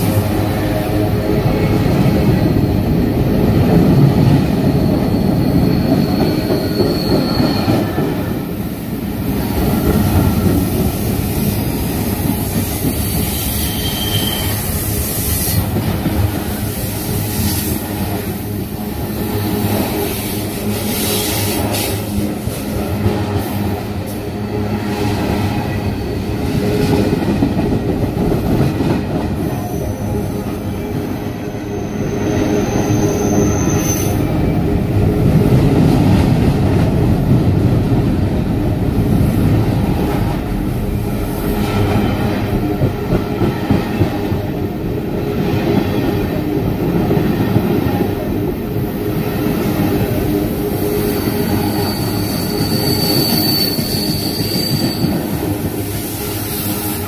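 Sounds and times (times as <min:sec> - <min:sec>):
train wheels rumbling on rail: 0:00.0 - 0:57.0
high wheel squeal: 0:04.0 - 0:08.0, 0:13.2 - 0:14.8, 0:31.7 - 0:34.3, 0:51.1 - 0:55.4.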